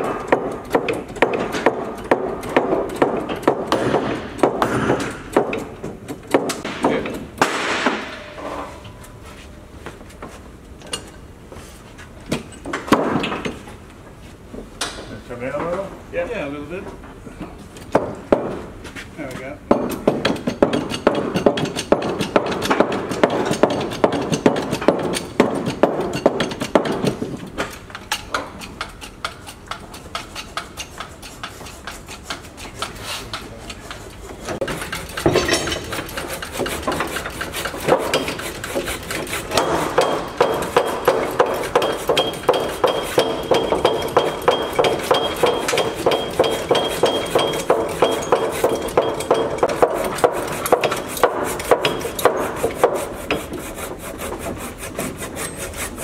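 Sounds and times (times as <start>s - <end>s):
hammer blows on wooden planking: 28.5s - 55.2s.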